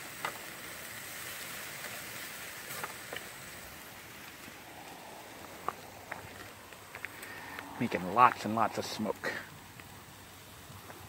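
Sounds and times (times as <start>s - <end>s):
meat sizzling on a grill: 0.0s - 11.0s.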